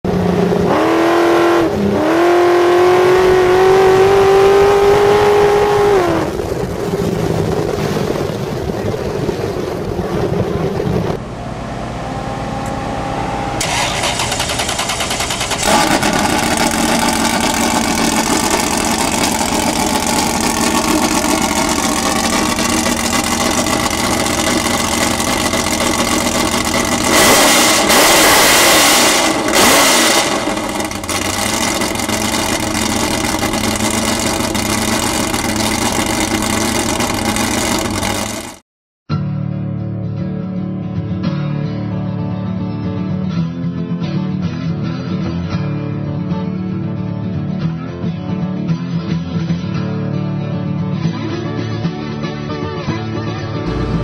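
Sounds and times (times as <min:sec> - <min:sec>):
buggy engine revving high: 0:00.1 - 0:08.3, 0:09.8 - 0:38.6, 0:53.7 - 0:54.0.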